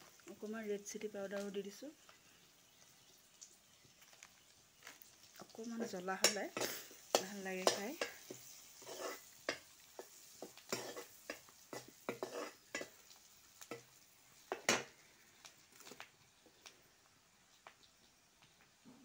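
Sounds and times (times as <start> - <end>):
faint oil sizzle: 0.0 - 19.0
spatula scraping a pan: 5.8 - 13.1.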